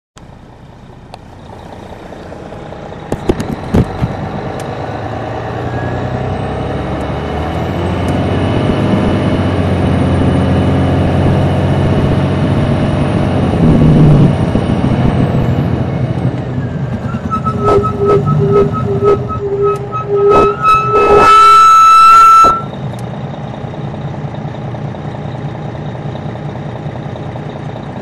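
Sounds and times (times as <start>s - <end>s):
diesel coach engine running: 0.2s - 28.0s
high whine: 16.4s - 22.8s.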